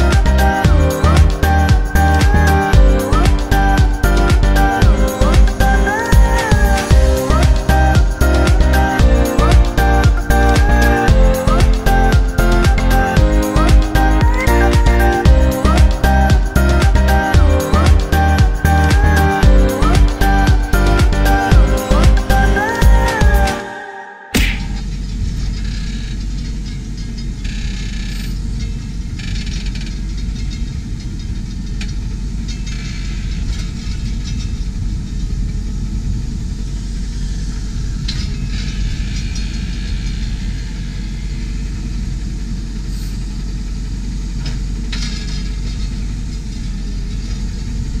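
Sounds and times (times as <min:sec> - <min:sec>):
tractor engine running: 0:00.0 - 0:23.6.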